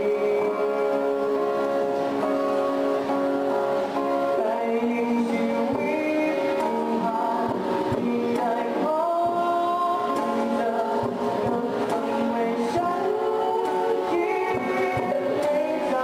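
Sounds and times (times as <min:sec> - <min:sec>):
acoustic guitar: 0:00.0 - 0:16.0
person singing: 0:00.0 - 0:16.0
cajon: 0:03.6 - 0:16.0.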